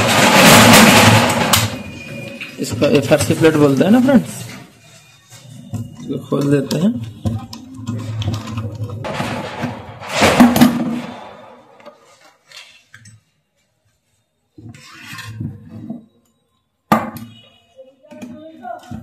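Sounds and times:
plastic and metal parts clattering: 0.0s - 13.3s.

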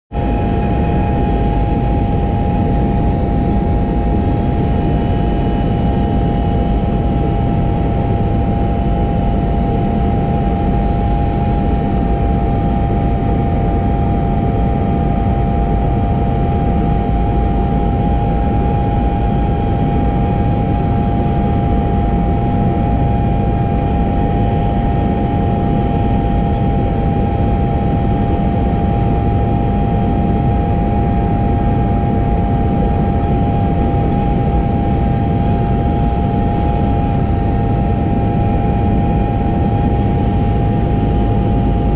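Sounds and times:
propeller plane engine drone: 0.1s - 41.9s.

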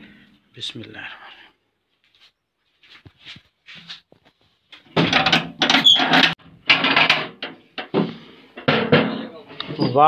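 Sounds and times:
metal door scraping and rattling: 4.9s - 10.0s.

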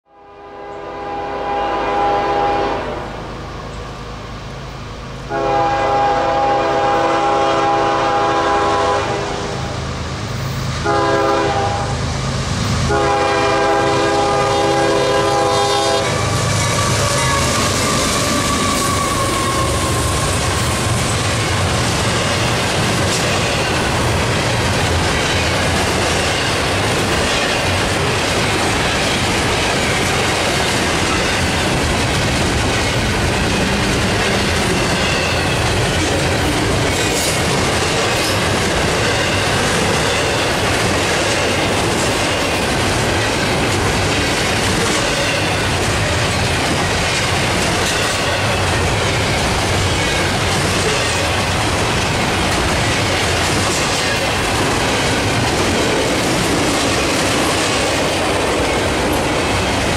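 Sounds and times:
locomotive air horn: 0.1s - 3.2s, 5.3s - 9.7s, 10.8s - 12.0s, 12.9s - 20.9s
train rumbling past: 0.2s - 59.9s
wheels clacking over rail joints: 12.9s - 59.9s.

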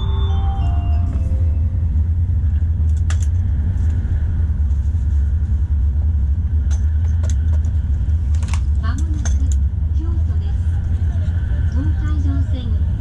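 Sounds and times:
chime melody: 0.0s - 1.9s
train cabin deep rumble: 0.0s - 13.0s.

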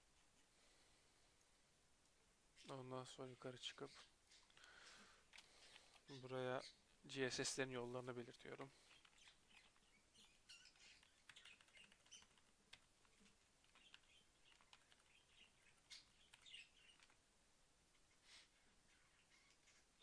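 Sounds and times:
faint keyboard typing: 4.4s - 6.2s, 8.4s - 17.2s.

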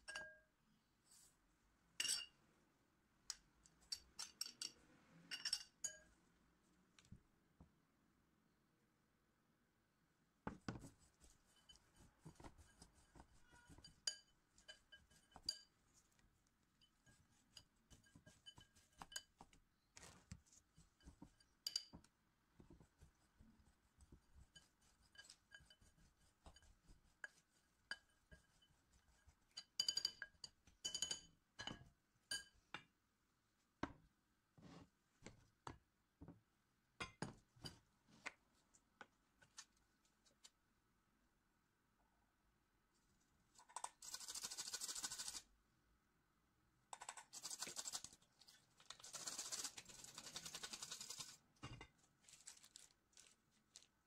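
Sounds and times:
metal spoon clinking against bowls: 0.0s - 0.4s, 2.0s - 2.4s, 3.8s - 6.1s, 13.4s - 15.7s, 21.0s - 22.1s, 24.5s - 28.7s, 29.5s - 32.6s.

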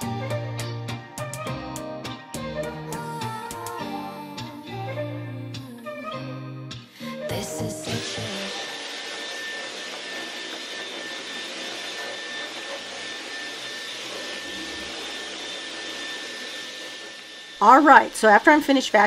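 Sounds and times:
high whine: 7.0s - 18.4s
stick vacuum running: 7.2s - 18.6s.

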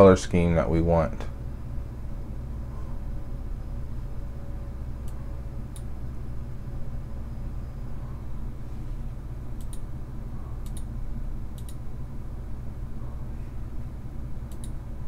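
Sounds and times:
low hum: 0.0s - 15.0s
computer mouse clicking: 9.6s - 9.8s, 10.6s - 10.9s, 11.5s - 11.8s, 14.5s - 14.8s.

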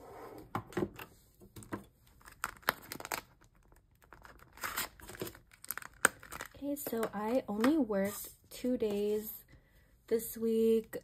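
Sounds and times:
plastic envelope crinkling: 2.1s - 7.8s.

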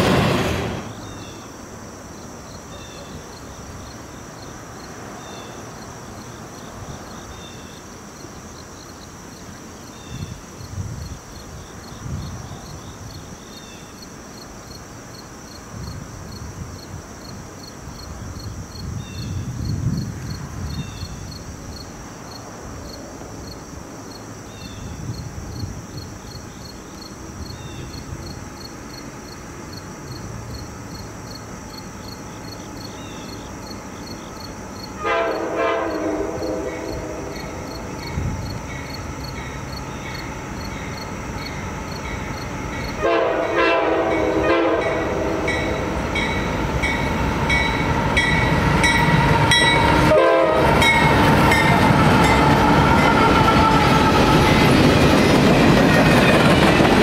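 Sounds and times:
crickets trilling: 0.0s - 57.0s
short insect chirps: 0.6s - 43.0s.

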